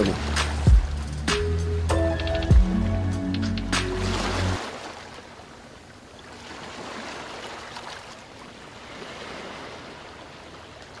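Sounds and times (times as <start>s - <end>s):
small waves lapping on sand: 4.0s - 11.0s.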